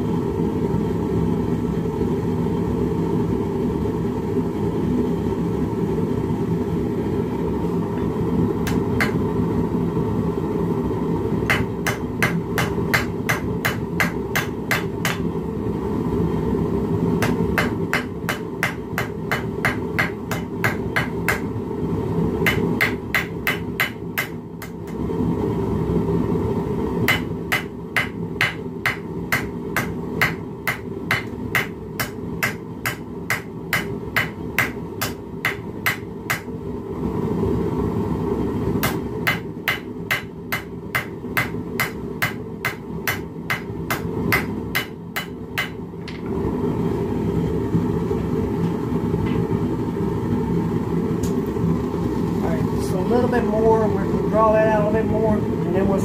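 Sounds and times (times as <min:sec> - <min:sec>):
hammer striking hot steel: 0:08.6 - 0:09.2, 0:11.4 - 0:15.3, 0:17.2 - 0:21.6, 0:22.4 - 0:25.0, 0:27.1 - 0:36.5, 0:38.8 - 0:46.2.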